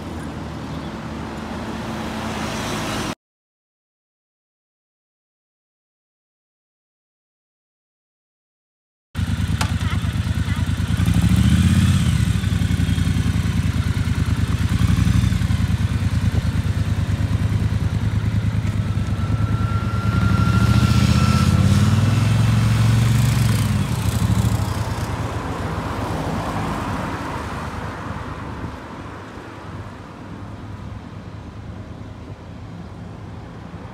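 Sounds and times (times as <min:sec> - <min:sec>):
motorcycle engine revving: 0:09.2 - 0:25.3.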